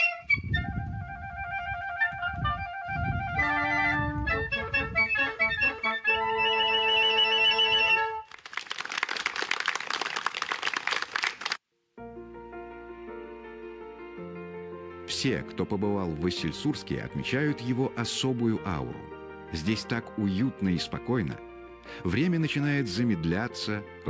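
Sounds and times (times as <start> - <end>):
wind ensemble playing melody: 0.0 - 8.3.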